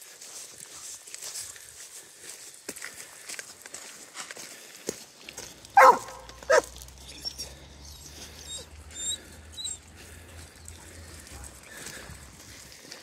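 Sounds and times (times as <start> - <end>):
dog barking: 5.8 - 6.8.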